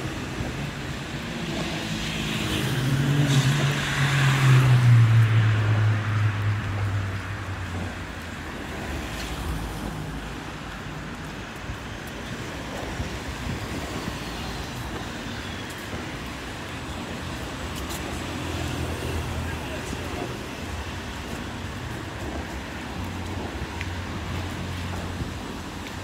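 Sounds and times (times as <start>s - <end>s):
road traffic noise: 0.0s - 26.0s.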